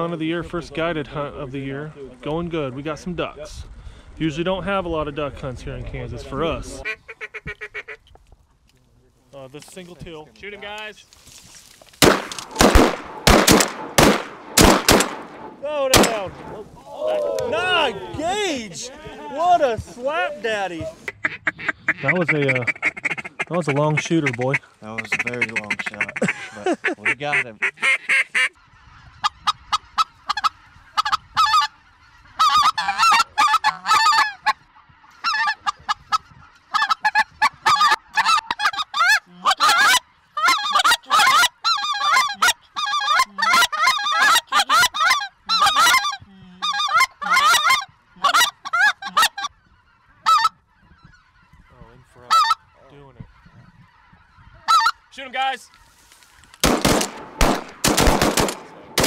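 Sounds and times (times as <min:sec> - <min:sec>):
rapid sharp cracks: 0:11.9 - 0:16.6, 0:56.5 - 0:59.0
geese honking in flight: 0:19.3 - 0:57.0.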